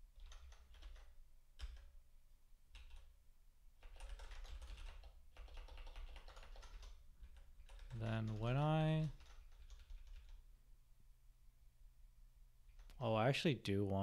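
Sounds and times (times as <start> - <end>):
computer keyboard typing: 0.1 - 1.9, 2.7 - 3.1, 3.8 - 10.4, 12.7 - 13.0.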